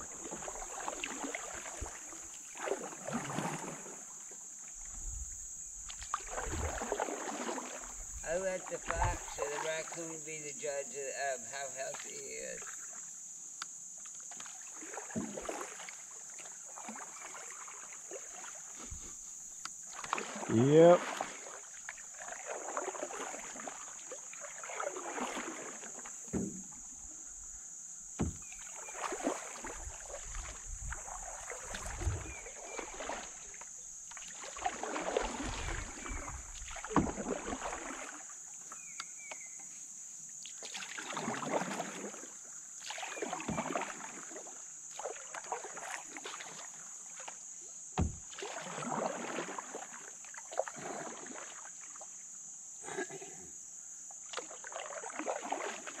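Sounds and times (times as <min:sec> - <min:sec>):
paddle knocking against canoe: 0:00.0 - 0:10.5, 0:18.1 - 0:39.7, 0:42.8 - 0:46.5, 0:47.2 - 0:49.9
paddle swishing water: 0:00.0 - 0:13.2, 0:14.0 - 0:52.4, 0:54.1 - 0:56.0.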